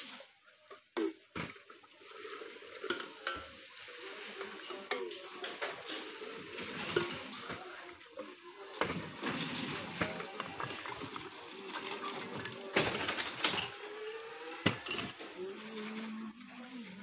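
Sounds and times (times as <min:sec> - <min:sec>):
liquid pouring splashing: 0:00.0 - 0:15.2
metal jugs clinking: 0:01.0 - 0:08.0, 0:08.7 - 0:13.9, 0:14.6 - 0:15.9.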